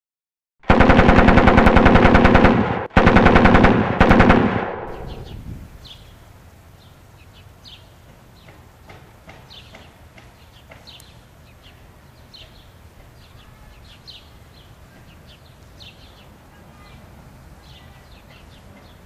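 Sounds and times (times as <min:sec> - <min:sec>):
machine gun automatic fire: 0:00.6 - 0:05.4.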